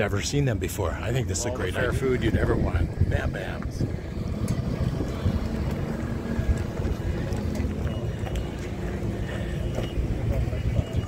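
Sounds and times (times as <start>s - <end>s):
wind rumbling on microphone: 1.6s - 8.4s.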